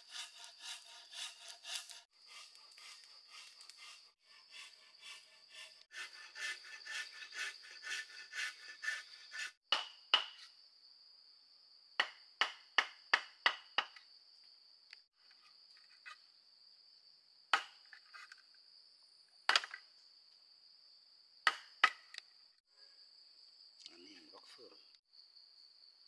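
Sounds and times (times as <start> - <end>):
hand saw on wood: 0.0 - 9.6
sharp tool strikes: 9.7 - 10.5.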